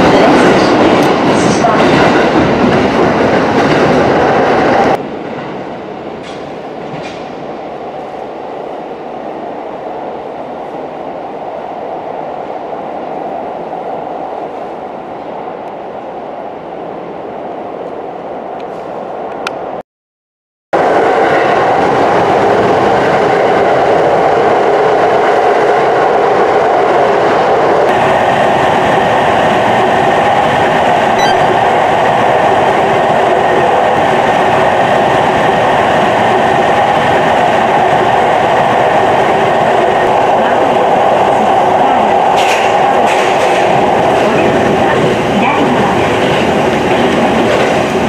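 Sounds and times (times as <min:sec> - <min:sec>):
train wheels on rails: 0:00.0 - 0:08.3, 0:20.8 - 0:48.0.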